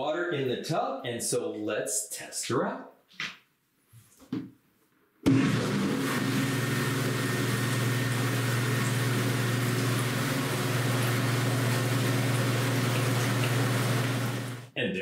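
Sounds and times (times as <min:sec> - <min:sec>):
jets churning bathwater: 0:05.3 - 0:14.7
bathtub pump humming: 0:05.3 - 0:14.8.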